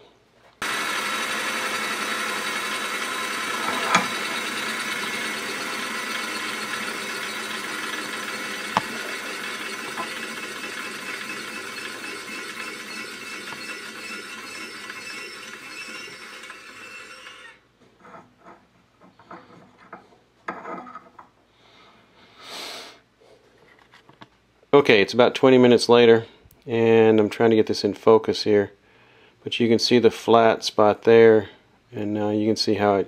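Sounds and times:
bench grinder whirring: 0.6s - 18.2s.

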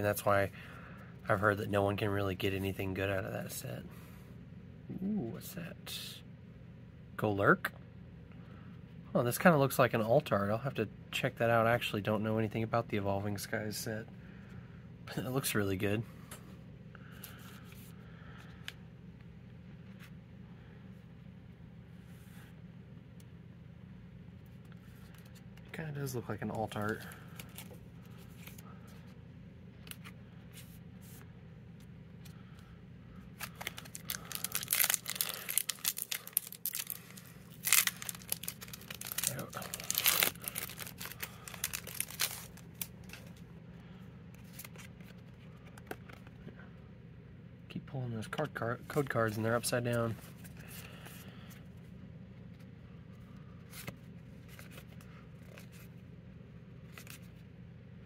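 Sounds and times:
faint steady hum: 0.0s - 58.0s
foil wrapper crinkling and tearing: 33.4s - 43.3s.

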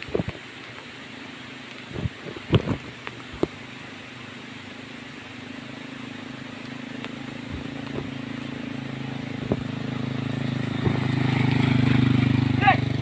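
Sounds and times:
motorbike engine approaching: 3.2s - 13.0s.

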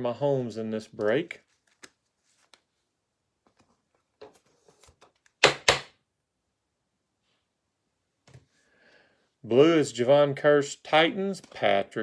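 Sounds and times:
card rustling in plastic sleeve: 0.8s - 5.3s.

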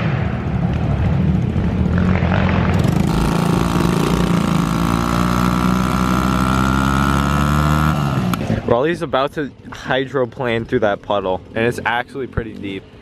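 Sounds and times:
dirt bike engine revving: 1.5s - 8.7s.

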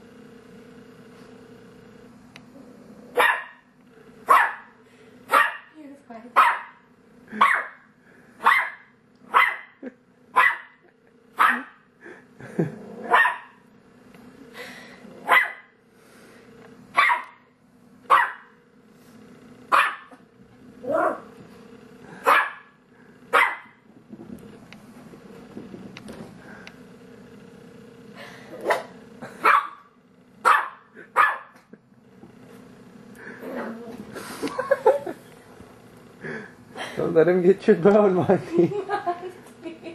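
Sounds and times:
dog barking: 3.2s - 3.6s, 4.3s - 5.7s, 6.4s - 9.8s, 10.4s - 10.8s, 11.4s - 11.8s, 13.1s - 13.6s, 15.2s - 15.7s, 17.0s - 17.4s, 18.1s - 18.5s, 19.7s - 20.2s, 22.2s - 23.8s, 28.7s - 31.6s.

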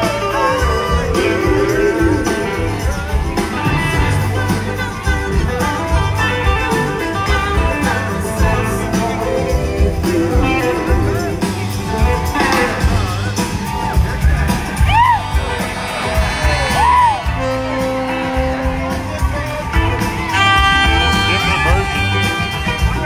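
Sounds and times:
live blues-rock band playing: 0.0s - 23.0s
audience whooping: 14.3s - 19.3s.

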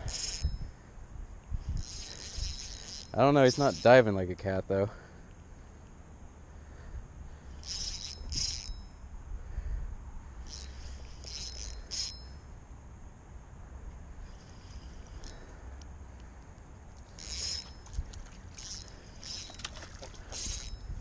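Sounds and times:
spinning reel clicking: 0.0s - 0.7s, 1.6s - 4.1s, 7.4s - 9.0s, 10.4s - 12.4s, 14.4s - 15.6s, 17.1s - 17.8s, 18.6s - 19.7s, 20.3s - 20.9s
low rumble of wind: 0.0s - 21.0s.

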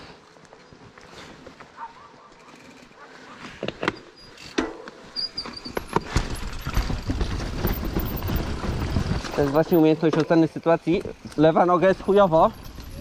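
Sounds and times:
bike rattling over stones: 3.6s - 13.0s
wind rumble on microphone: 12.0s - 13.0s.

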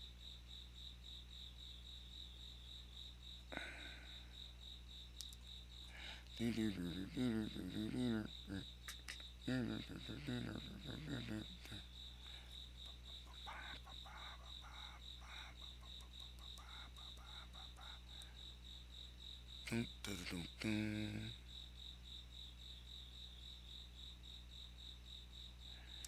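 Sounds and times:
cricket chirping: 0.0s - 26.0s
person humming: 3.5s - 4.0s, 6.0s - 11.9s, 19.7s - 21.4s.

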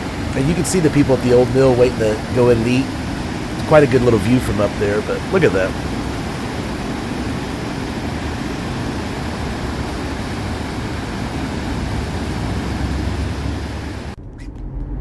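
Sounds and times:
water rushing over a dam: 0.0s - 14.2s.

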